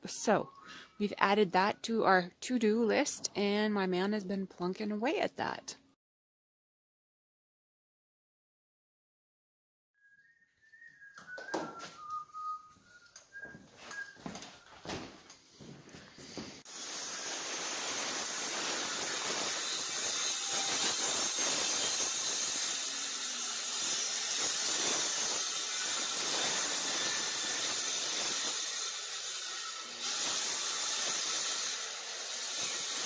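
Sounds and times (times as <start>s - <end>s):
circular saw cutting plywood: 16.6s - 33.0s.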